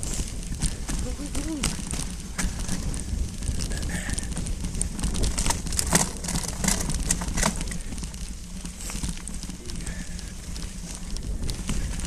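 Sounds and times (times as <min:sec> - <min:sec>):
bike tyres rumbling: 0:00.0 - 0:12.0
gravel and bike rattling: 0:00.0 - 0:12.0
wind on microphone: 0:00.0 - 0:12.0.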